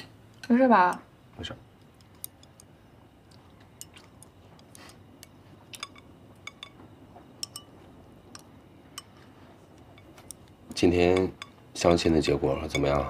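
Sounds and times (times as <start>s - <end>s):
chopsticks clinking on ceramic bowls: 1.8s - 2.7s, 3.3s - 11.6s, 12.6s - 13.0s.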